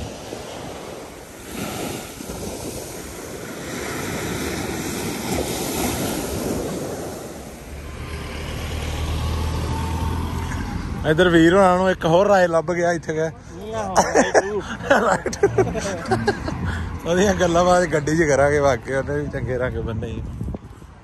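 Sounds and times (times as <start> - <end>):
wind on microphone: 0.0 - 7.9, 19.1 - 21.0
surf washing up on beach: 0.0 - 11.5.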